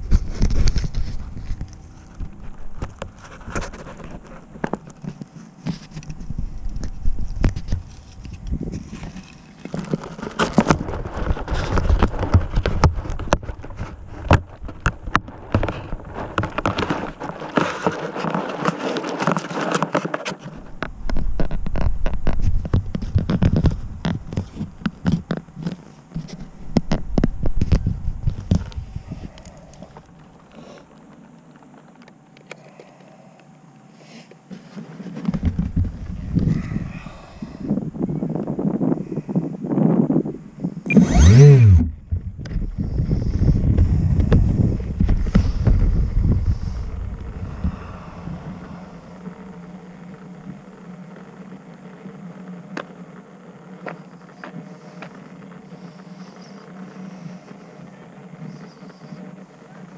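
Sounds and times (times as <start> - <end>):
scraping rustle: 0.0 - 26.8.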